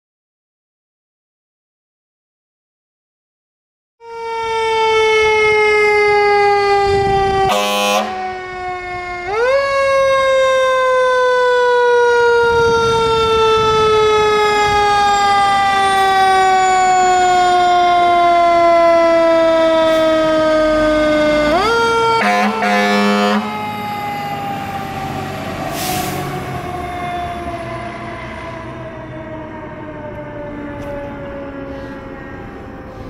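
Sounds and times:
fire engine siren wailing: 4.0s - 33.0s
horn blast: 7.5s - 8.2s, 22.2s - 23.6s.

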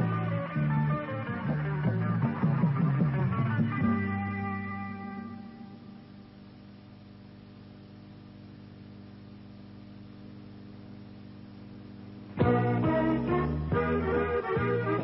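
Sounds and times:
background music: 0.0s - 6.2s, 12.3s - 15.0s
low electrical hum: 0.0s - 15.0s.

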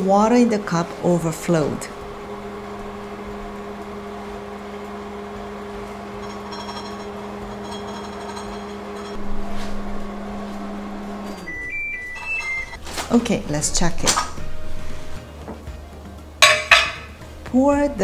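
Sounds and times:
microwave oven humming: 0.0s - 17.4s
microwave beeping: 2.0s - 12.9s.

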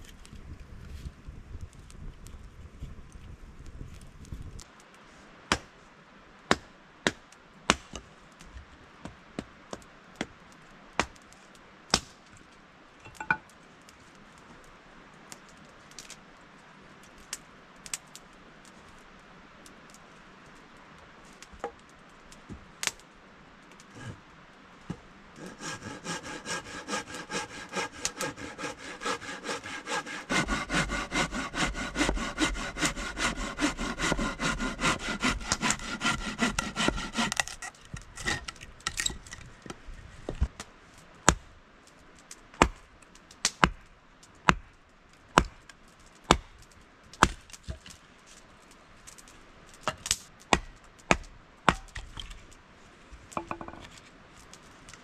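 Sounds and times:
hand saw cutting wood: 25.4s - 38.6s
wood knocking and cracking: 53.4s - 53.9s.

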